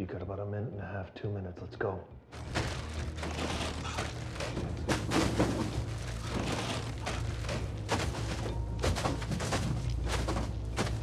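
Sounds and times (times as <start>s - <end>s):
film score with low drone: 0.0s - 11.0s
dull thuds: 2.4s - 11.0s.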